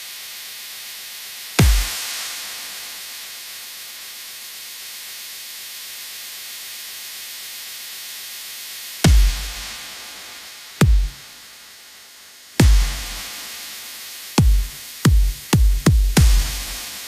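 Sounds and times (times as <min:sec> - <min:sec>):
white noise hiss: 0:00.0 - 0:17.0.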